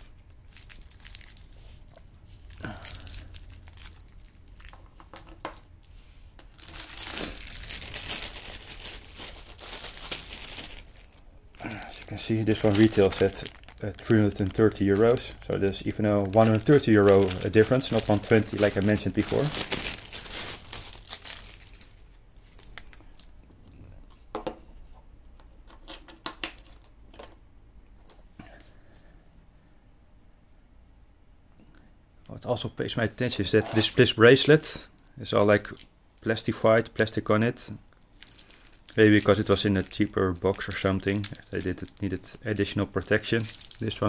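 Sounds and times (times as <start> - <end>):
plastic wrapping rustling: 0.0 - 23.4, 33.4 - 36.4, 38.0 - 44.0
plastic bag crinkling: 0.1 - 23.4, 33.5 - 36.4, 37.9 - 44.0.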